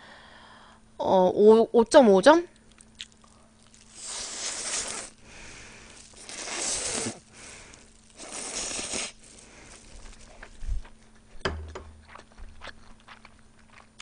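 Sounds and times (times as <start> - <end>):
person slurping noodles: 3.6 - 10.4.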